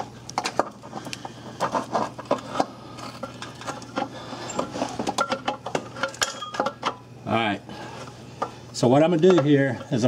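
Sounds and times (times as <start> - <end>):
steady low hum: 0.0 - 10.0
metal clinks and knocks: 3.3 - 7.0.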